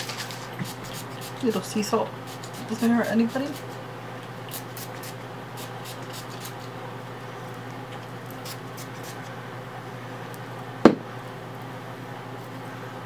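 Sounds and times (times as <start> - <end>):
sharp knock: 10.8 - 11.0.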